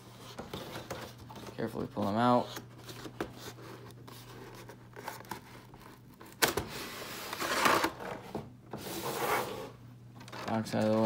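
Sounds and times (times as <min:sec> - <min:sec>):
plastic tray sliding from box: 0:08.7 - 0:09.8.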